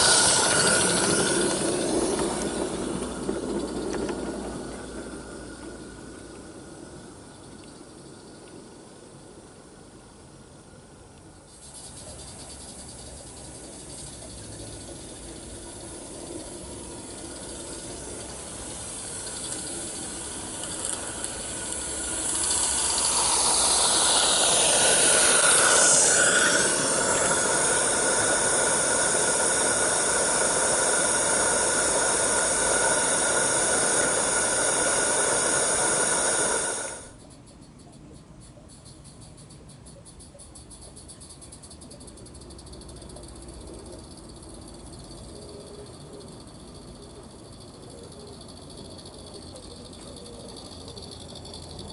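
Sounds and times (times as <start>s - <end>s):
steam locomotive hissing: 0.0s - 8.7s, 11.5s - 37.2s.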